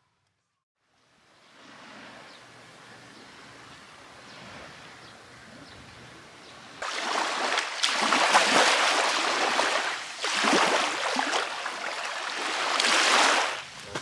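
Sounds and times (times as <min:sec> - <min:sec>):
small waves washing on sand: 0:06.8 - 0:14.0.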